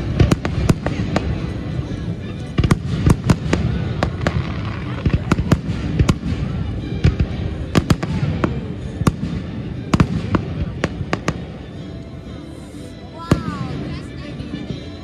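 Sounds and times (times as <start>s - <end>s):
fireworks bursting: 0.0s - 11.6s.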